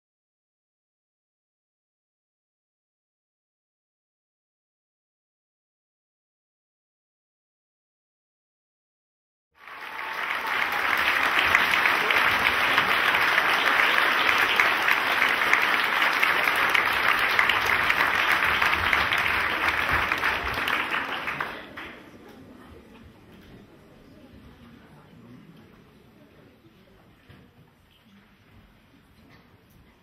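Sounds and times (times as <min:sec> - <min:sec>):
audience applauding: 0:09.6 - 0:22.1.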